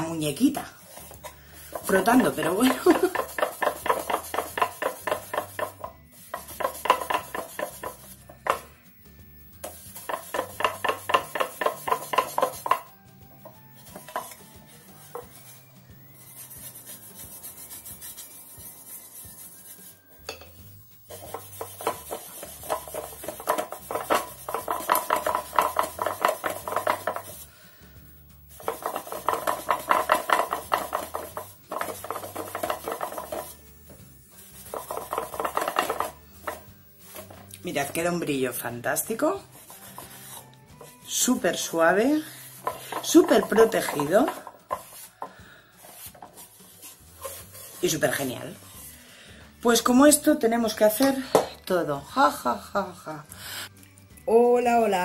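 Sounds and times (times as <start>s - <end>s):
cloth pad rubbing on wood: 1.8s - 8.3s, 13.9s - 20.0s, 21.1s - 27.5s, 28.5s - 33.6s, 45.8s - 48.9s.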